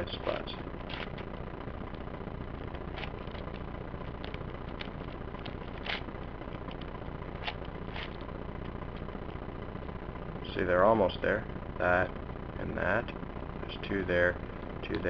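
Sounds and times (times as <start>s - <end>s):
low background noise: 0.0s - 15.0s.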